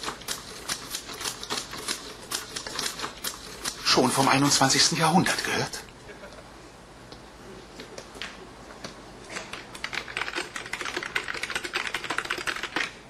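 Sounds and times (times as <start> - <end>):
typing on keyboard keys: 9.3 - 13.0.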